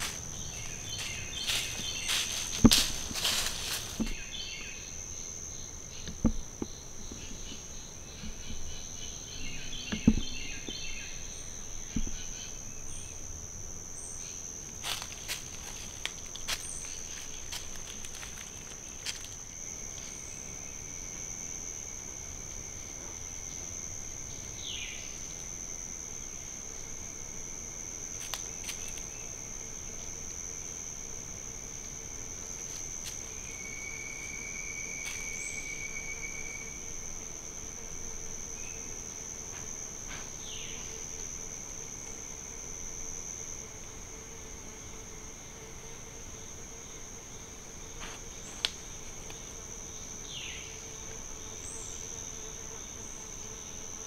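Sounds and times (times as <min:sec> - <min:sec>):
insect chorus drone: 0:00.0 - 0:54.0
lower insect trill: 0:00.0 - 0:54.0.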